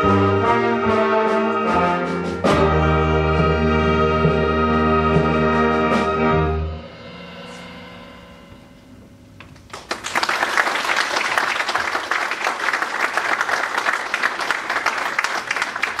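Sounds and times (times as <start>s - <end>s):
wind band chord: 0.0s - 9.3s
audience applause: 9.6s - 16.0s.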